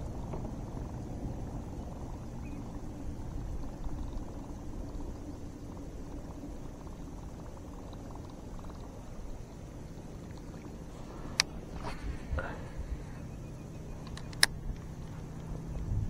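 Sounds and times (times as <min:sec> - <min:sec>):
low rumble: 0:00.0 - 0:16.0
water lapping against kayak: 0:00.0 - 0:16.0
sharp click: 0:14.0 - 0:14.9.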